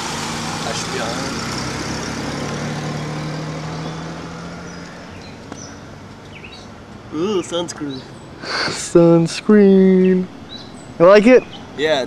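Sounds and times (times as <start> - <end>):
car driving off: 0.0 - 9.2.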